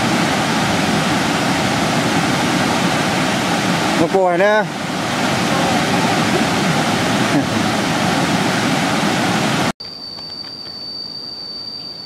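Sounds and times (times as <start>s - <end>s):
waterfall rushing over rocks: 0.0s - 9.7s
high-pitched insect trill: 9.8s - 12.0s.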